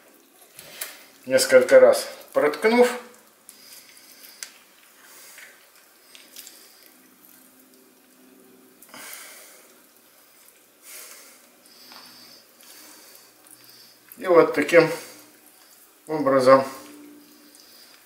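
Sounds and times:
soft squishing of raw meat: 3.0 - 18.0.

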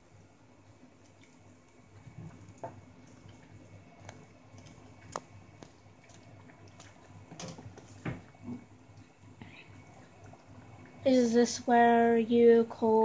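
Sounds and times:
wet squishing of stirred lentils: 0.9 - 11.1.

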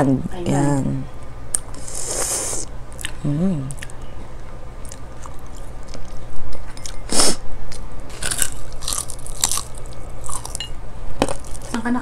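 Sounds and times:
chewing food: 2.9 - 7.0, 7.7 - 10.6
crunchy bites: 8.1 - 10.6.

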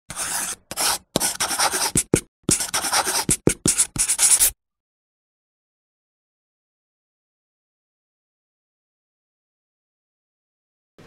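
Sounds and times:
pen writing on paper: 0.1 - 4.6.

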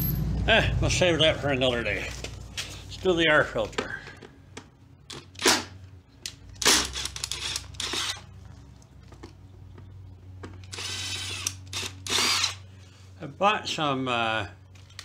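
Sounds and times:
cordless driver whirring: 6.6 - 8.2, 10.6 - 12.6.

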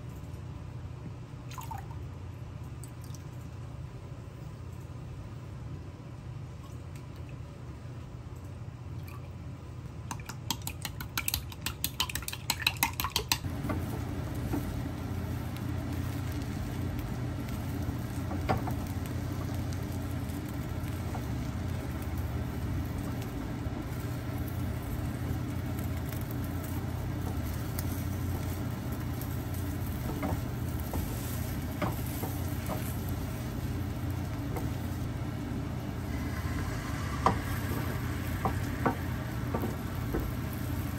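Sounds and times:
eggs beaten in a glass cup: 10.0 - 13.5
spatula taps: 10.1 - 13.8, 29.9 - 33.0
egg sizzling in a pan: 10.3 - 40.9.

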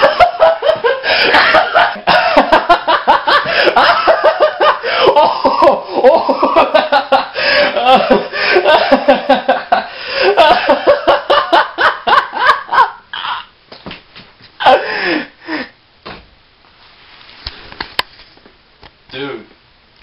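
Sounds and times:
young man laughing hard: 0.0 - 13.5, 14.6 - 15.7.

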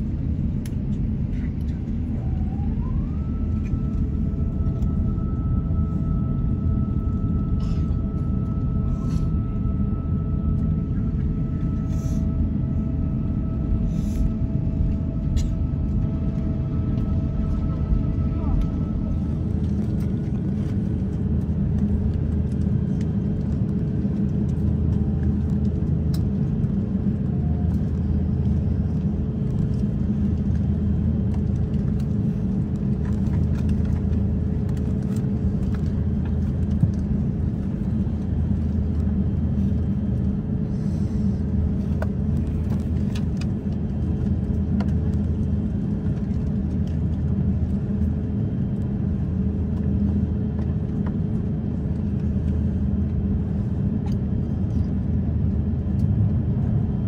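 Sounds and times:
airliner cabin rumble: 0.0 - 57.0.

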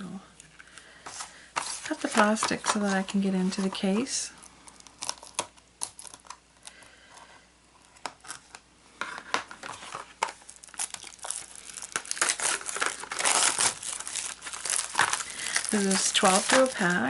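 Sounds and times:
shrink wrap crinkling and tearing: 1.6 - 6.8, 9.6 - 17.0.

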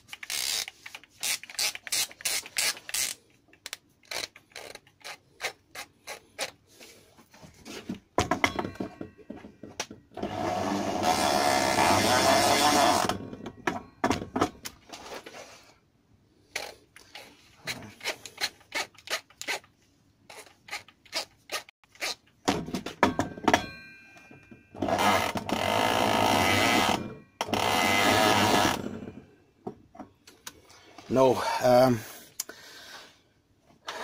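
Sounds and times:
clicks and knocks of parts handled: 0.0 - 6.6
power drill spinning: 0.1 - 3.2, 4.0 - 6.6, 10.2 - 13.2, 24.8 - 28.9.

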